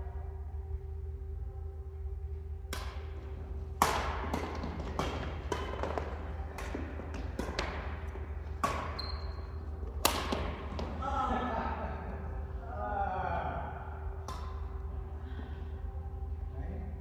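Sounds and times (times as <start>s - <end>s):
steady low hum: 0.0s - 17.0s
rackets hitting shuttlecock: 2.7s - 11.1s, 14.2s - 14.8s.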